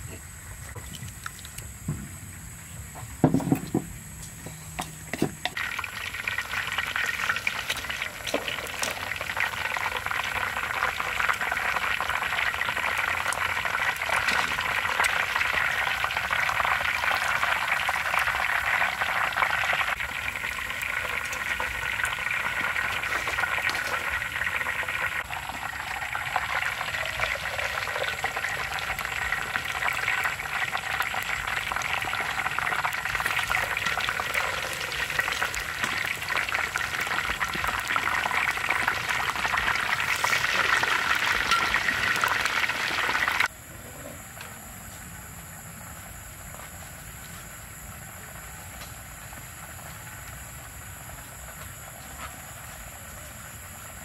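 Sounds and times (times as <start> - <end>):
knocks: 3.2 - 3.9
hot oil sizzling and crackling: 3.5 - 43.5, 45.2 - 54.0.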